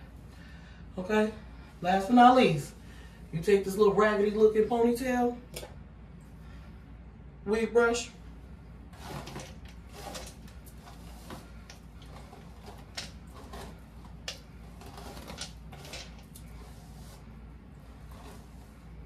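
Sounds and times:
hair brushing swishes: 8.9 - 19.0.

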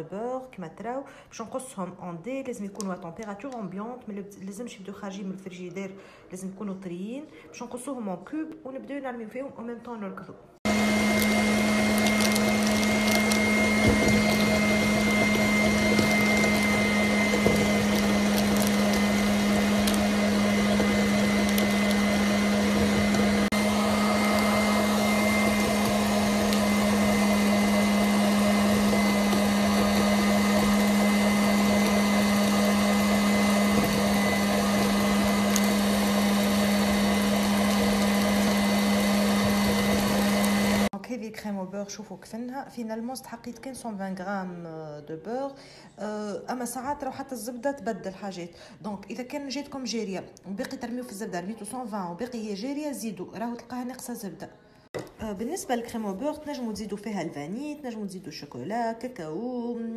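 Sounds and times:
electric stand mixer humming: 10.7 - 40.9
whisk beating mixture: 10.7 - 40.9.

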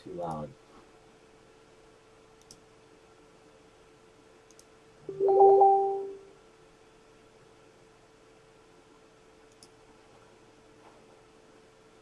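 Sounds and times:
electronic notification ding: 5.1 - 6.2.

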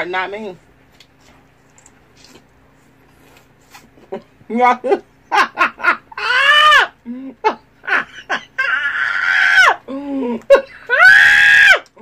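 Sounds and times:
woman laughing in squeals: 5.3 - 11.8.

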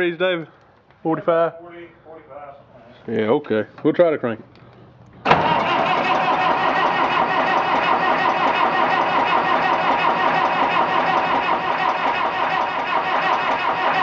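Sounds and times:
tractor engine cranking: 5.2 - 14.0.

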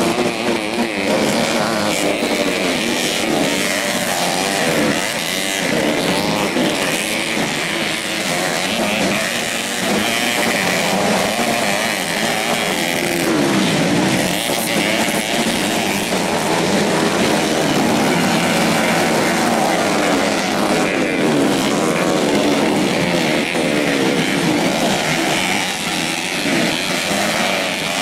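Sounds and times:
motorcycle engines revving: 0.0 - 28.0.

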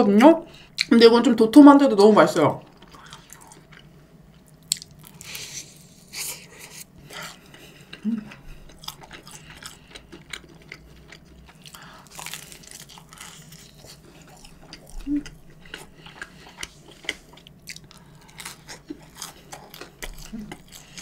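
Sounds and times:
pizza crust crunching: 4.6 - 21.0
close chewing with wet smacking: 7.3 - 21.0.

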